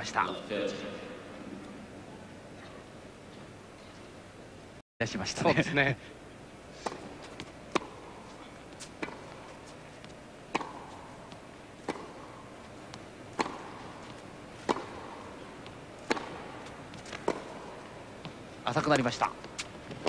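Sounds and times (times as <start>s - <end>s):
tennis ball struck by racket: 6.8s - 20.0s.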